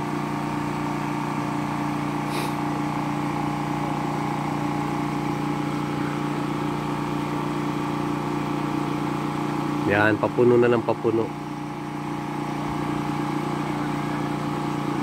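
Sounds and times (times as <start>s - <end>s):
water pump motor humming: 0.0s - 15.0s.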